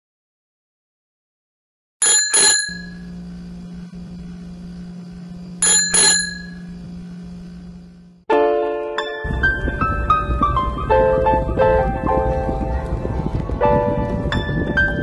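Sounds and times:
bicycle bell ringing: 0:02.0 - 0:03.1, 0:05.6 - 0:06.7
low electric hum: 0:02.1 - 0:15.0.

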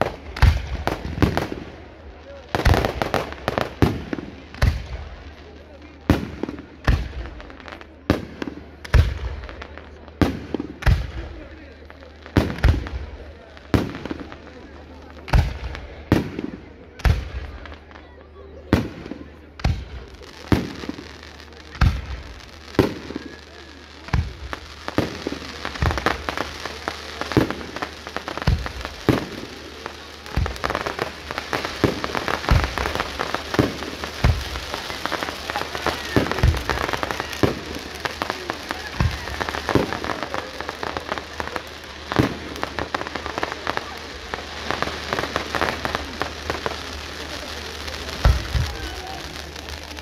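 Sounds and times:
fireworks crackling: 0:00.0 - 0:50.0
firework shells bursting: 0:24.1 - 0:50.0.

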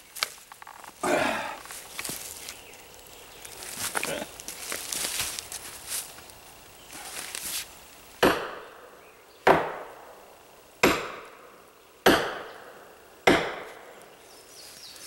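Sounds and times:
sledgehammer striking steel wedge: 0:10.8 - 0:11.3, 0:12.1 - 0:12.5.

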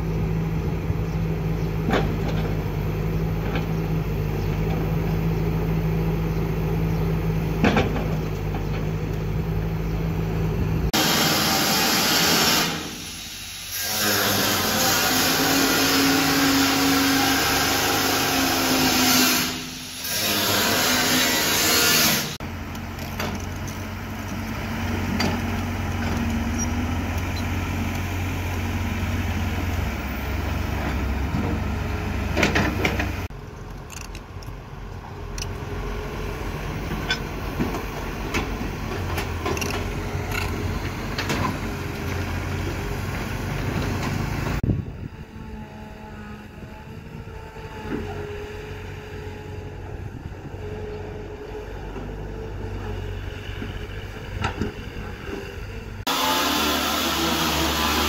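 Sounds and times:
excavator diesel engine running: 0:00.0 - 0:11.9, 0:22.4 - 0:56.6
angle grinder cutting steel: 0:11.0 - 0:22.4, 0:56.1 - 0:58.0.

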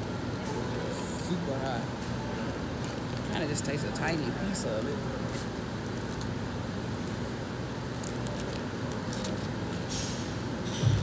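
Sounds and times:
low hum: 0:10.7 - 0:11.0.

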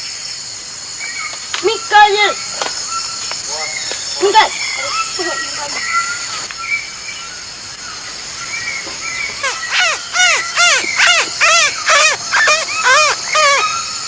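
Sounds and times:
high insect drone: 0:00.0 - 0:14.0
boy mimicking bird calls: 0:09.4 - 0:13.8.

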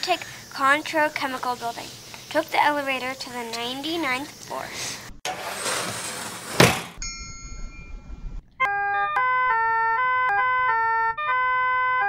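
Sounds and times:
chime tune bell-like notes: 0:07.0 - 0:08.4
low hum: 0:07.0 - 0:08.6.

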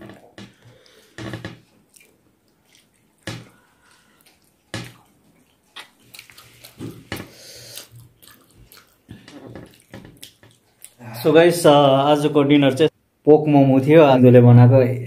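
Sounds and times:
chewing: 0:00.0 - 0:11.2.

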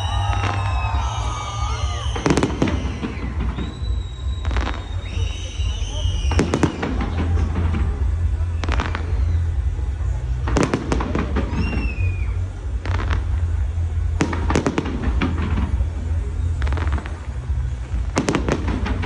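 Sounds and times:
falling firework whistle: 0:00.0 - 0:13.3, 0:18.0 - 0:19.0
fireworks crackling reports: 0:00.0 - 0:19.0
low rumble: 0:00.0 - 0:19.0.

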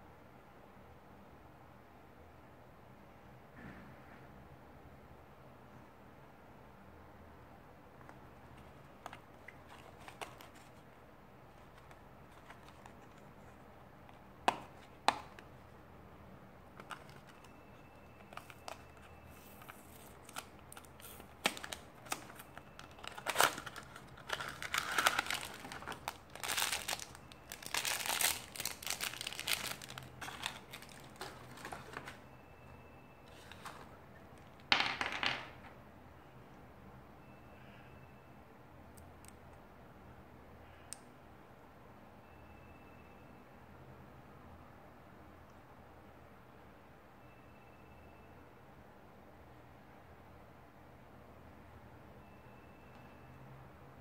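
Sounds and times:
foil bag crinkling and tearing: 0:19.4 - 0:32.2.

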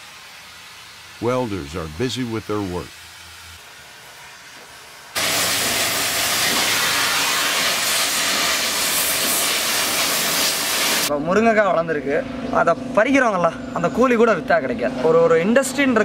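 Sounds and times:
welding torch flame hissing: 0:00.0 - 0:11.1.

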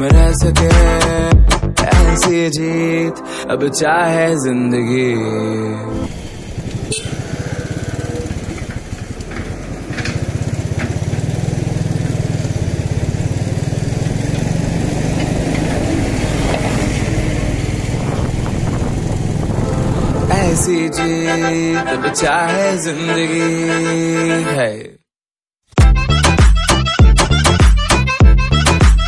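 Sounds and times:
motorcycle engine running: 0:06.0 - 0:20.6.

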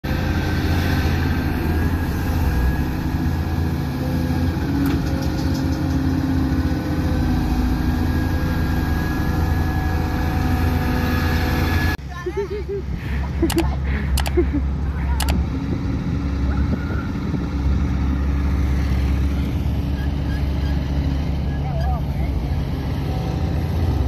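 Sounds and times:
diesel engine rumbling: 0:00.0 - 0:24.0.

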